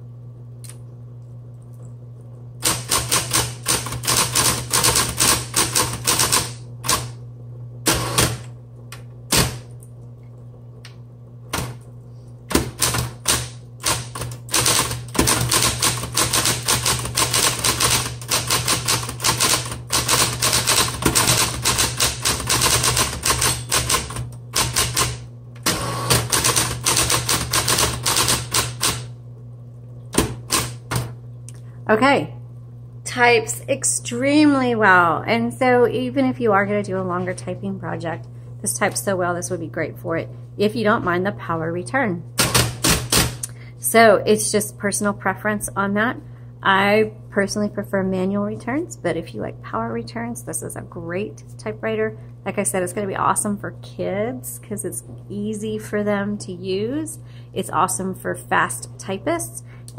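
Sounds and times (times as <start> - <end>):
typewriter motor humming: 2.6 - 7.2, 7.8 - 8.6, 9.3 - 9.8, 11.5 - 11.8, 12.5 - 29.1, 30.2 - 31.1, 42.4 - 43.6
typewriter keystrokes: 12.5 - 25.2, 26.1 - 29.1, 42.4 - 43.4.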